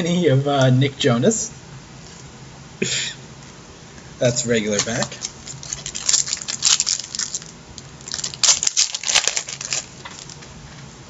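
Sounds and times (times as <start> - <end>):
card pack crinkling: 4.7 - 10.5.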